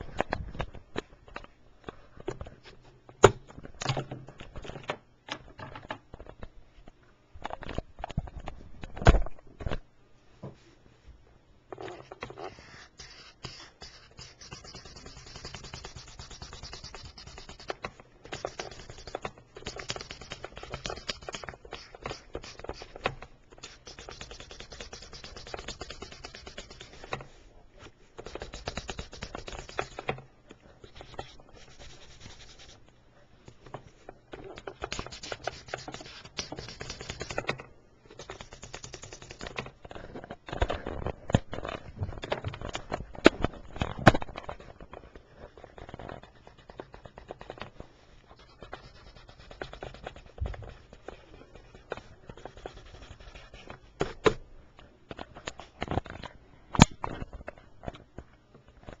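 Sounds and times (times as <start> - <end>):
crayon scratching on paper: 12.2 - 27.2, 28.2 - 30.1, 30.8 - 32.8, 34.8 - 37.4, 45.5 - 47.7, 48.3 - 53.7.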